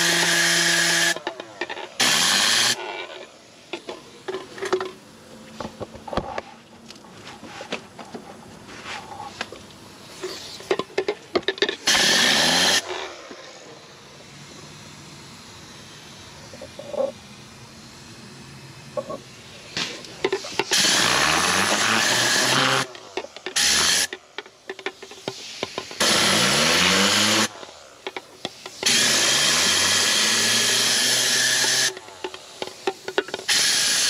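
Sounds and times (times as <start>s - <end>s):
compressed air hissing blast: 9.9s - 10.8s, 11.8s - 34.0s.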